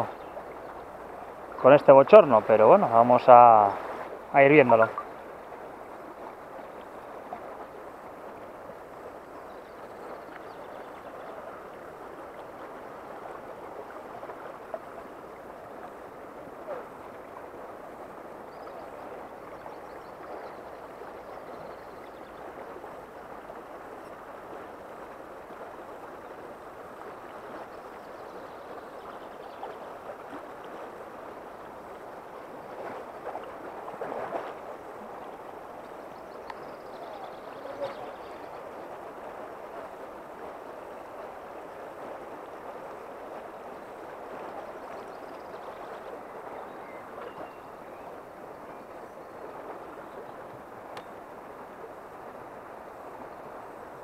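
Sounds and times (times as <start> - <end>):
river flowing over gravel: 0.0 - 54.0
faint clicks: 35.8 - 36.7.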